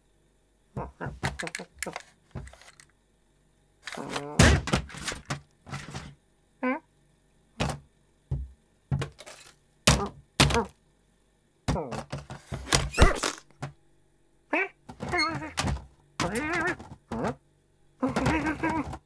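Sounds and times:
strained cat vocalisations: 0:00.7 - 0:01.7, 0:14.5 - 0:15.6, 0:16.2 - 0:17.4
thunks and knocks on bin lid: 0:04.4 - 0:06.1, 0:07.6 - 0:09.2, 0:14.9 - 0:17.4, 0:18.0 - 0:19.0.

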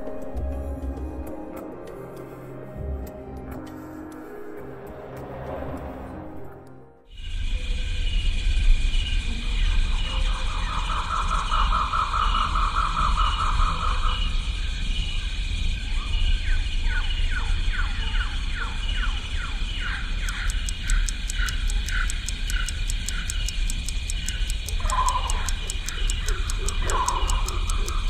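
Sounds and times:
steady low hum: 0:19.1 - 0:28.0
fast clock-like ticking: 0:20.0 - 0:28.0.

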